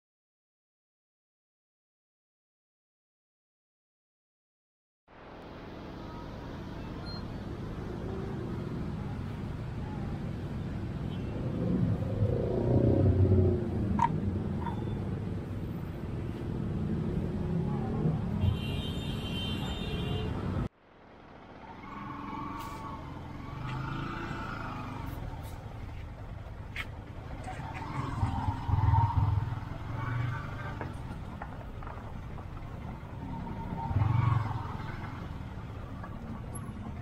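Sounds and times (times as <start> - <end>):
road traffic rumble: 5.1 - 37.0.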